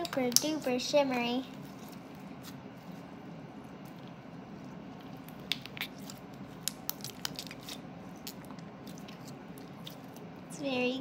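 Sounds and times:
slime being kneaded: 1.6 - 10.4.

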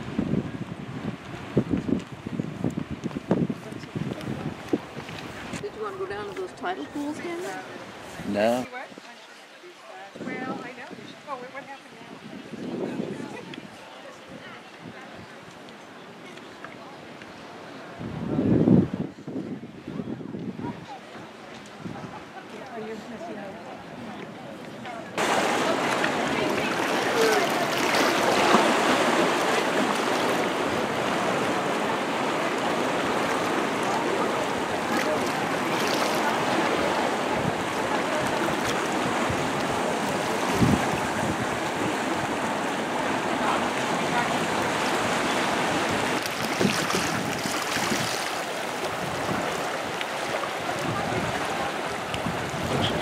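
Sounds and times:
sea water washing against rocks: 25.2 - 53.0.

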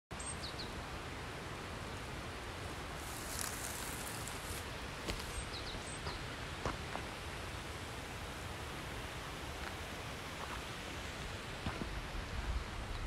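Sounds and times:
outdoor background noise: 0.1 - 13.0
footstep on gravel: 3.0 - 5.4.

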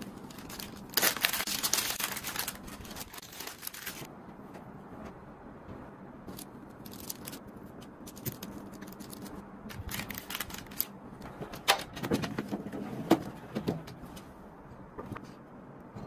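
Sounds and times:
parchment paper rustling: 0.0 - 4.1, 6.3 - 10.9.

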